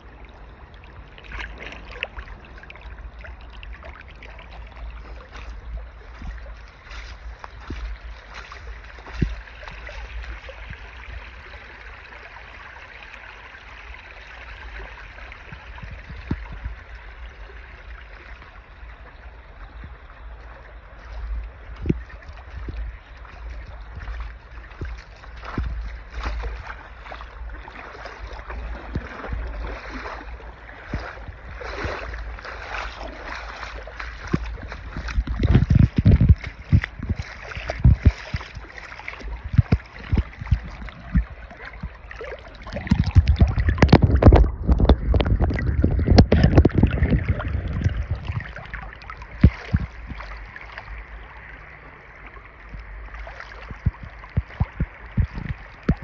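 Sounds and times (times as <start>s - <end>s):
water gurgling over gravel: 0.0s - 56.0s
wind gusts on microphone: 15.4s - 17.6s, 28.3s - 50.5s, 53.6s - 56.0s.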